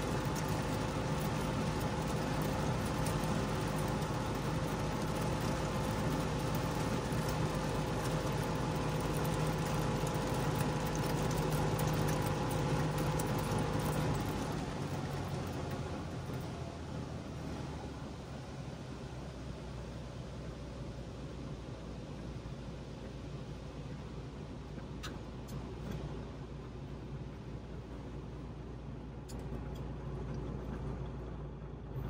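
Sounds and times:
two-stroke car engine running: 0:00.0 - 0:16.4.

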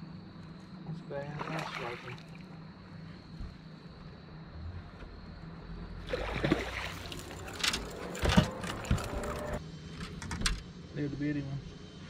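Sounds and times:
sharp splash: 0:01.3 - 0:02.4, 0:06.1 - 0:07.5
fish thrashing and splashing: 0:01.4 - 0:02.5, 0:06.0 - 0:08.2.

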